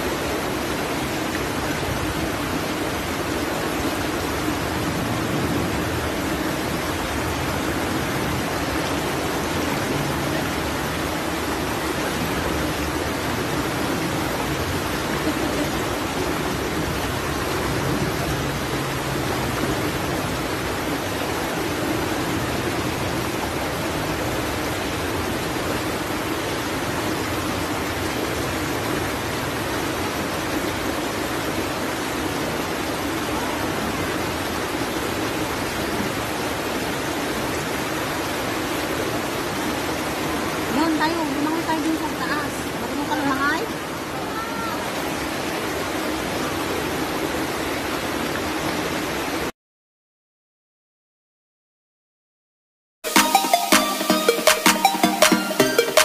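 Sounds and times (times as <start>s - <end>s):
water cascading over boulders: 0.0s - 49.5s.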